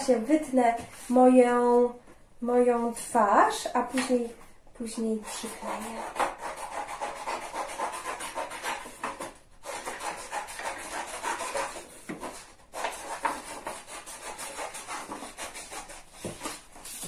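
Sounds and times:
paper rustling: 15.1 - 17.0.

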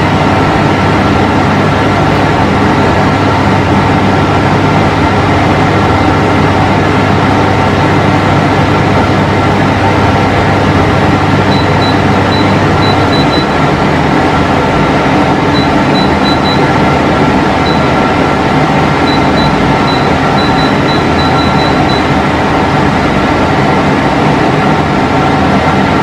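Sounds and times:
air conditioner humming: 0.0 - 26.0.

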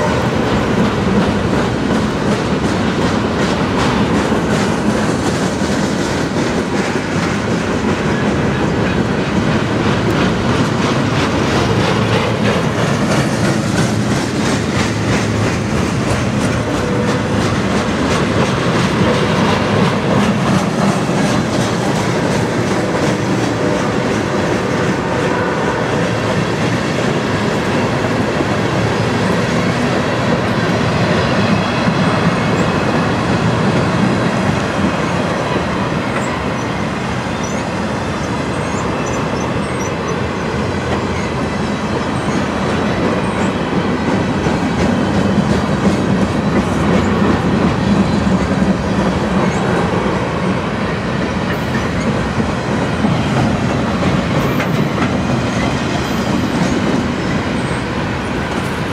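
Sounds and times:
train wheels rumbling on rails: 0.0 - 58.9
wheels clacking over rail joints: 0.0 - 58.9
faint high wheel squeals: 36.2 - 40.5.

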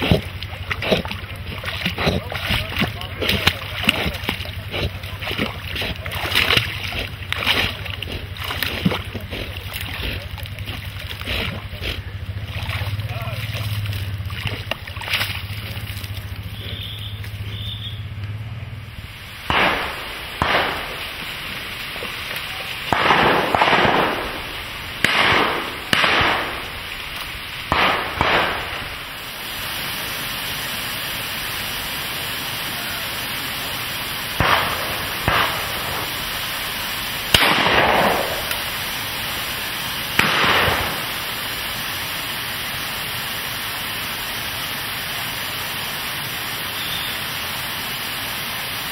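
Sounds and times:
steady hiss: 15.2 - 48.9
shotguns firing: 19.5 - 21.4, 22.9 - 26.9, 27.7 - 29.1, 34.4 - 36.2, 37.3 - 38.7, 40.2 - 41.3.

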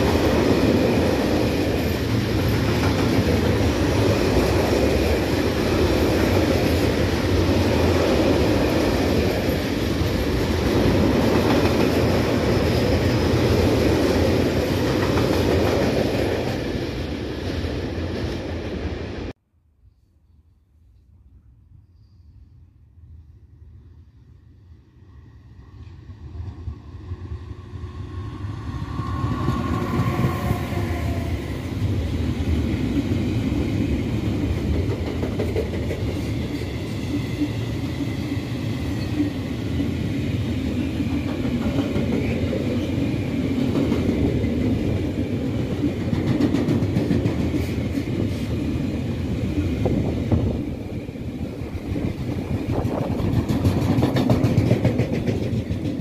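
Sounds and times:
freight train rumbling: 0.0 - 19.4, 24.7 - 56.0
electric locomotive whine: 21.8 - 56.0.

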